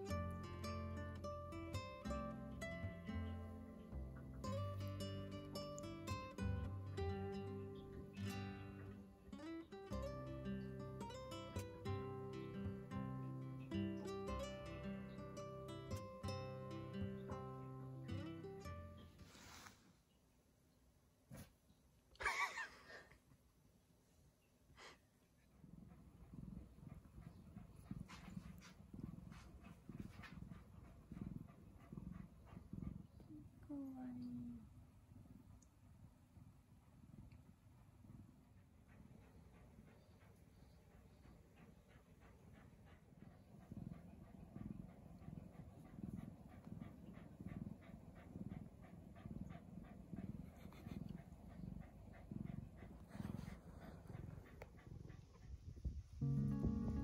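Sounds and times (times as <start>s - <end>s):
cat breathing: 25.6s - 33.4s, 37.8s - 55.8s.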